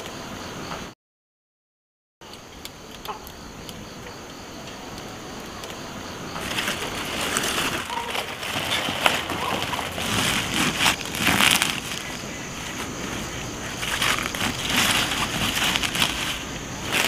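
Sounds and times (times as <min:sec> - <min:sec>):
cabbage leaves rustling: 0:06.3 - 0:17.0
plastic sack crinkling: 0:06.4 - 0:17.0.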